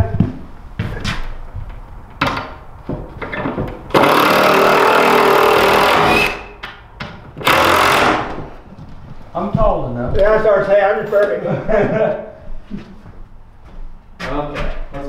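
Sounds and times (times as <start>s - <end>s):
cordless drill driving screw: 3.9s - 6.5s, 7.4s - 8.5s.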